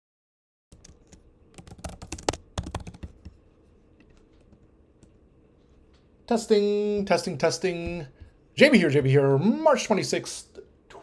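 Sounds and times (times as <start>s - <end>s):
typing on computer keyboard: 0.8s - 3.3s.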